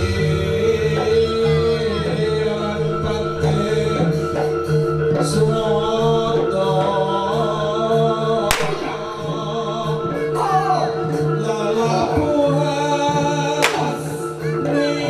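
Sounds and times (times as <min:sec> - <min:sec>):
gamelan music: 0:00.0 - 0:15.0
person singing wavering vocal: 0:00.0 - 0:15.0
whip crack: 0:08.5 - 0:09.1, 0:13.6 - 0:14.0.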